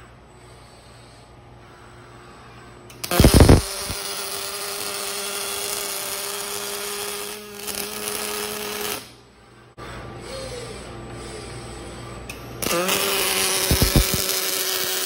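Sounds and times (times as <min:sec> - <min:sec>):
welding arc crackling hiss: 0:02.9 - 0:09.2, 0:12.6 - 0:15.0.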